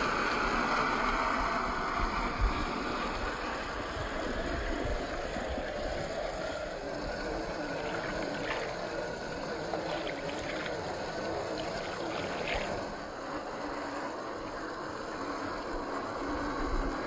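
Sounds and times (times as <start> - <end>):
river water sloshing: 0.0 - 17.0.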